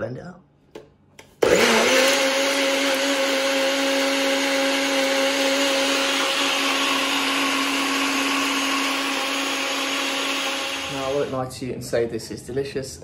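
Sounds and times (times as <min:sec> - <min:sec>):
blender motor whining: 0:01.4 - 0:11.4.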